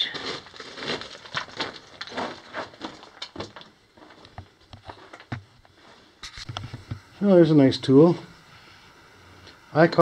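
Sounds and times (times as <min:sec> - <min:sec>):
footsteps on gravel: 0:00.0 - 0:05.4.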